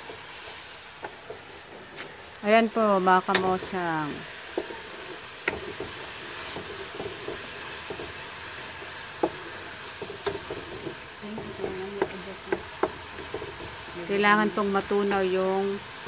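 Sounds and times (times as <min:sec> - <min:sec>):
sugar sizzling in a wok: 0:00.0 - 0:16.0
utensil clicking against pan: 0:04.5 - 0:15.2.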